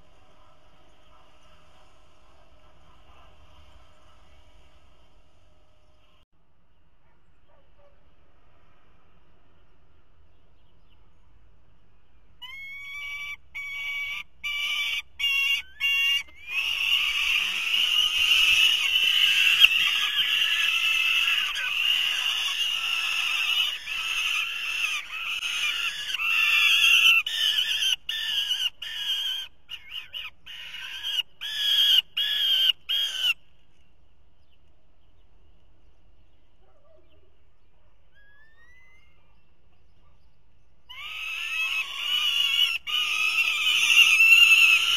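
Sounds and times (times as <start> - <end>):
young falcons screaming: 12.4 - 33.4, 40.9 - 44.9.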